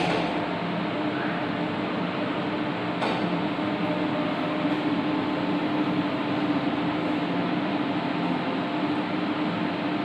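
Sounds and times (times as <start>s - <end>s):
machine hum: 0.0s - 10.0s.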